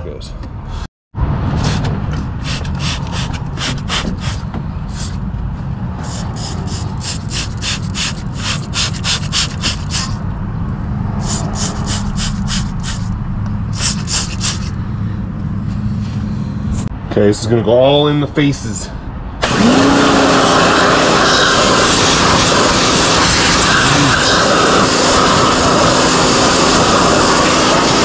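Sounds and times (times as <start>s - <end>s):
hand tool back-and-forth strokes: 6.1s - 10.2s, 13.8s - 14.7s.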